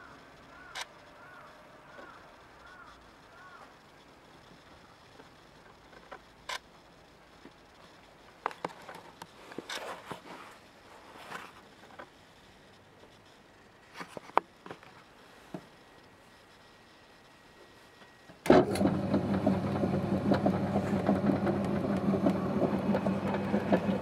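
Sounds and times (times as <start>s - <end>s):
soft rustles: 8.6s - 12.0s.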